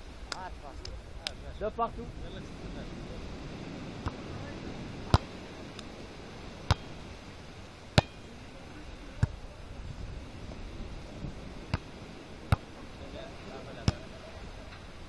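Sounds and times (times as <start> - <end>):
volleyball being struck: 5.0 - 5.4, 6.6 - 7.0, 7.9 - 8.4, 9.2 - 9.4, 11.7 - 12.7, 13.8 - 14.1.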